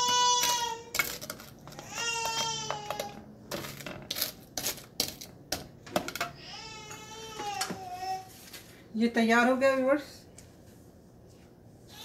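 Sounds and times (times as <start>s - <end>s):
dishes clicking and knocking: 0.0s - 7.8s
young child crying: 6.4s - 8.4s.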